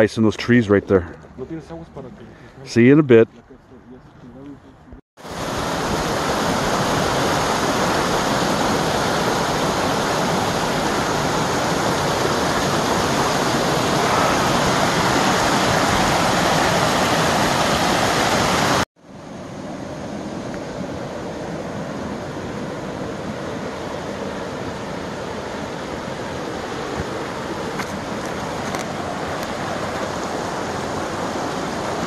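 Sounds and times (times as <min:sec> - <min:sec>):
creek rushing over rocks: 0:05.2 - 0:18.9, 0:22.8 - 0:32.0.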